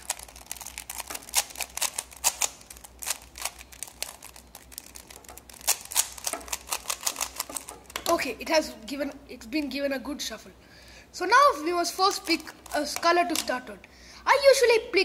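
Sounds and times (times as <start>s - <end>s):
puzzle cube clicking: 0.0s - 8.2s.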